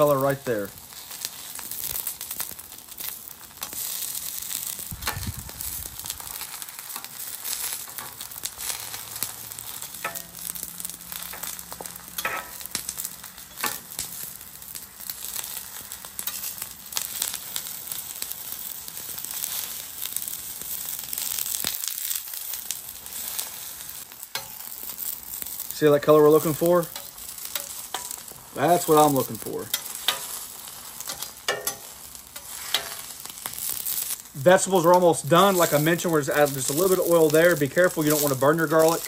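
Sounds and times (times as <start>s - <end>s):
vegetables sizzling on a griddle: 0.0s - 39.0s
metal utensils scraping steel: 12.2s - 12.7s, 26.3s - 36.9s.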